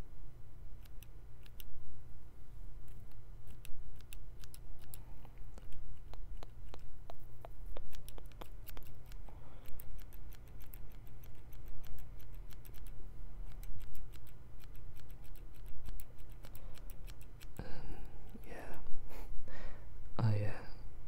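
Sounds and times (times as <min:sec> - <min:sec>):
scissors snipping: 0:02.8 - 0:17.6.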